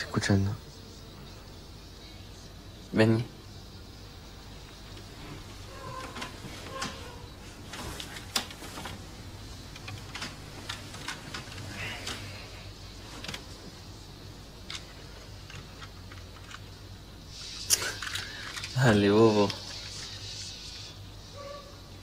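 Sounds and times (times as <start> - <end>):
bedsheets rustling: 4.6 - 16.8.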